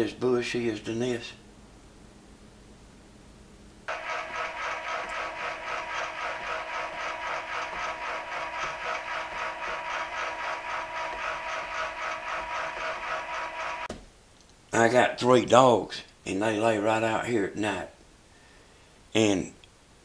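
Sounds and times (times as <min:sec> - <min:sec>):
camera rotor motor whirring: 0:03.9 - 0:13.9
rapid even clicking: 0:03.9 - 0:13.9.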